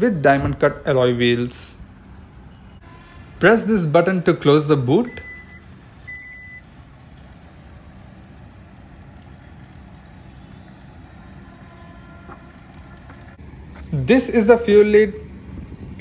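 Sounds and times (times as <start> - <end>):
tailgate warning chime beeping: 5.0 - 7.0.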